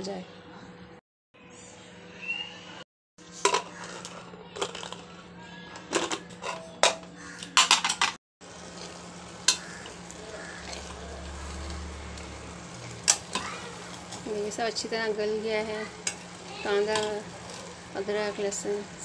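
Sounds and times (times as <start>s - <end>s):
steady sizzle: 8.4s - 19.0s
spoon stirring and scraping: 8.7s - 14.6s, 15.8s - 17.9s.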